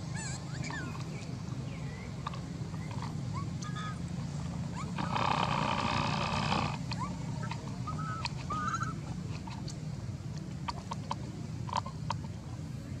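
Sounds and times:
baby monkey crying: 0:00.0 - 0:01.0, 0:07.9 - 0:09.0.

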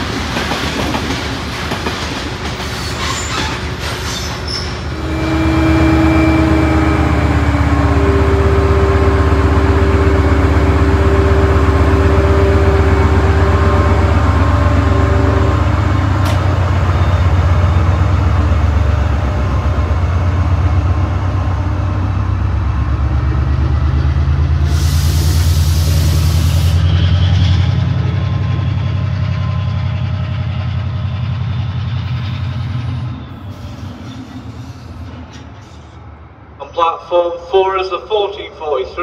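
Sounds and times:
diesel locomotive engine throbbing: 0:00.0 - 0:39.0
loud air hiss: 0:24.6 - 0:26.8.

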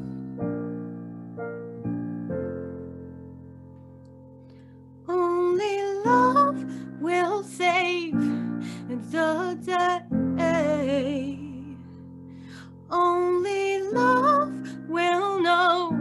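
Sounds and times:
piano chords: 0:00.0 - 0:16.0
woman singing a ballad: 0:05.1 - 0:16.0.

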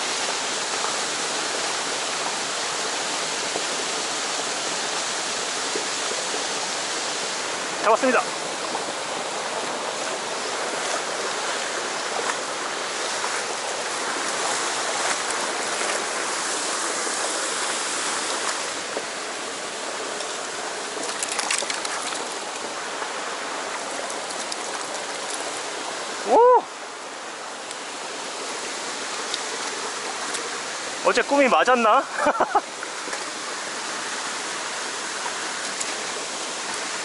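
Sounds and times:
stream rushing over rocks: 0:00.0 - 0:37.0
man exclaiming: 0:26.2 - 0:26.7.

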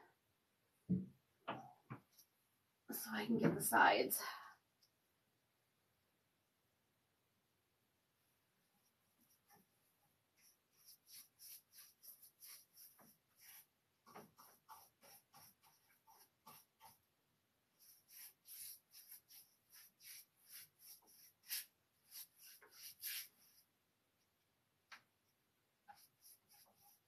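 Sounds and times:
paintbrush strokes on wood: 0:08.7 - 0:17.0, 0:17.8 - 0:23.7, 0:25.8 - 0:27.0.

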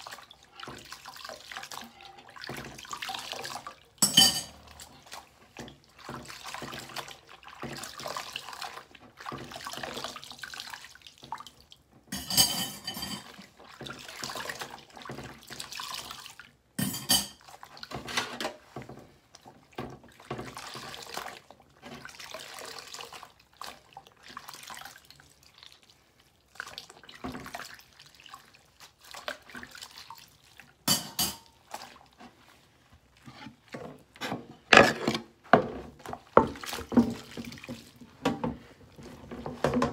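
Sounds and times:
water sloshing in a sink: 0:00.0 - 0:39.9
dishes knocking in a metal sink: 0:30.9 - 0:31.5
cloth scrubbing: 0:31.6 - 0:39.7.

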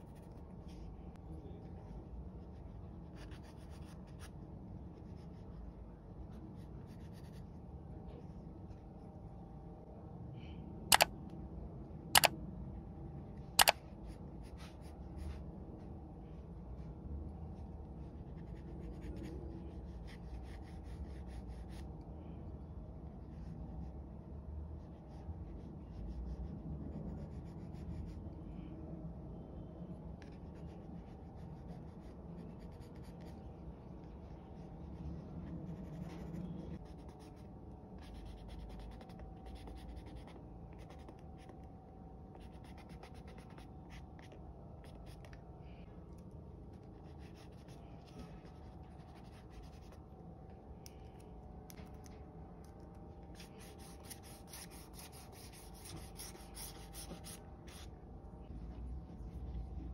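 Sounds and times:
eraser rubbing on paper: 0:53.4 - 0:57.9.

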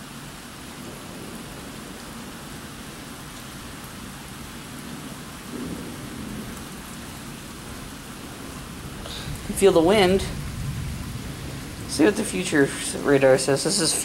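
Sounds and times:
steady rain: 0:00.0 - 0:14.0
thunder rolling: 0:04.9 - 0:06.8, 0:07.4 - 0:14.0.

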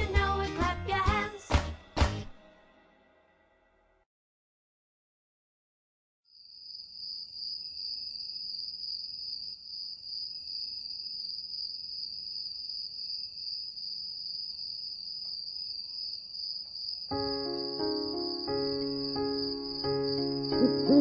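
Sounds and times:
high-pitched insect trill: 0:06.4 - 0:21.0.

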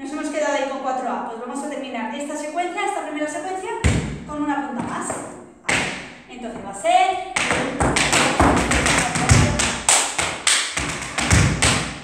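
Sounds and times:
heavy foot stamps: 0:03.8 - 0:06.8, 0:07.4 - 0:12.0
tap shoes clicking on floor: 0:07.4 - 0:11.9.

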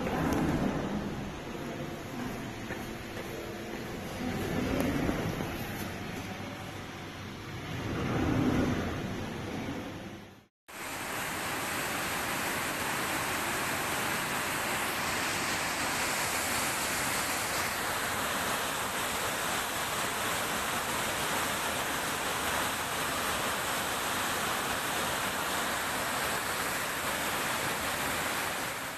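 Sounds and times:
floodwater rushing down street: 0:10.7 - 0:28.9.

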